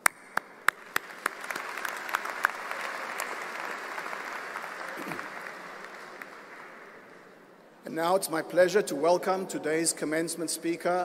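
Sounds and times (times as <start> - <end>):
audience applause: 0.0 - 7.1.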